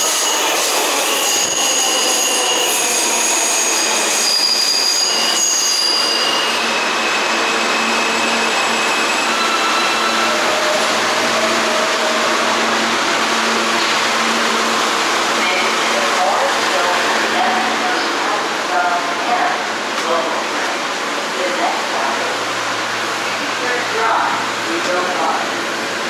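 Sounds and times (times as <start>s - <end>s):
train wheels squealing: 0.0s - 12.5s.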